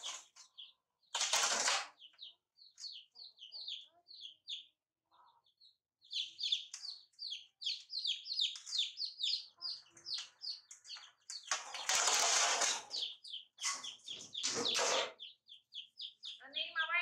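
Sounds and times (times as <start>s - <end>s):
baby chicks peeping: 0.0s - 17.0s
loud rustling scrape: 11.6s - 15.2s.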